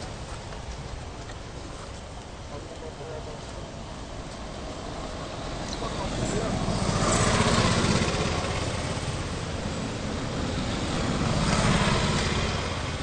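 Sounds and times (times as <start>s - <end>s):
small engine running: 6.0s - 12.9s.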